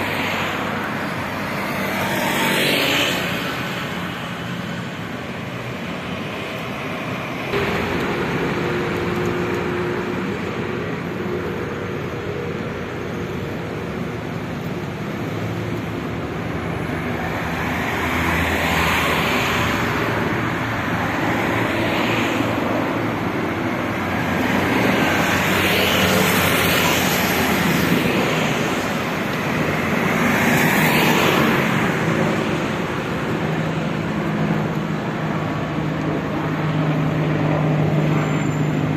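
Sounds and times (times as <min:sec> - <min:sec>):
road traffic rushing: 0:00.0 - 0:38.9
vehicles passing by: 0:00.0 - 0:38.9
steady engine tone: 0:05.0 - 0:17.5.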